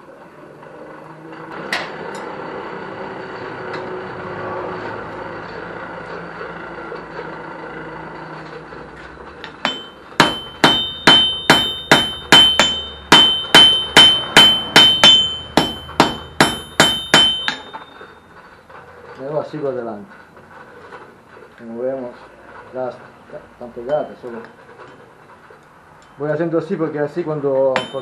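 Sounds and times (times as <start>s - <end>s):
hammer striking steel on anvil: 9.4s - 18.2s, 27.7s - 28.0s.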